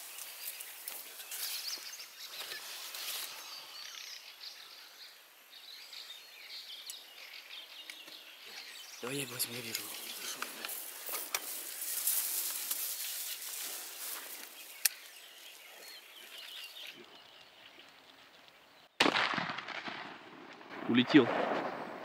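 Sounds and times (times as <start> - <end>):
shotgun blast: 19.0 - 22.0.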